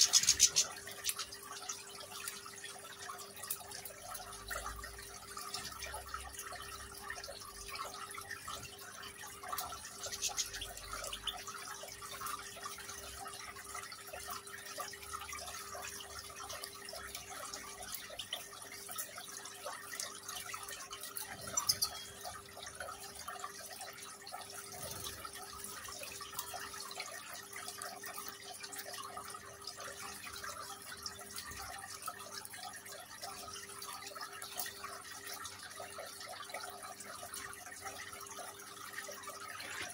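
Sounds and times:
small birds chirping: 0.0 - 1.4, 9.9 - 11.4
fountain water trickling: 0.0 - 39.9.

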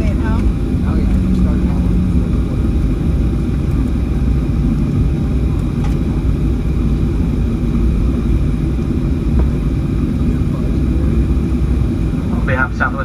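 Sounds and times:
airplane cabin rumble: 0.0 - 13.0.

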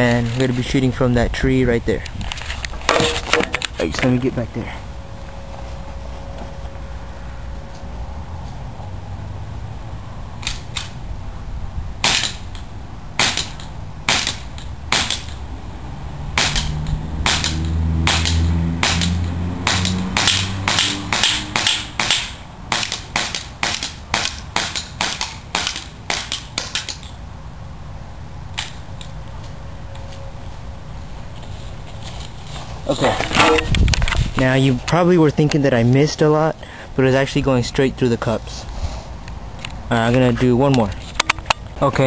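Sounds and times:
pellets striking targets: 2.8 - 3.9
low drone: 2.8 - 10.4
airsoft pistol shots: 12.0 - 12.4, 13.2 - 15.4, 16.4 - 27.0.

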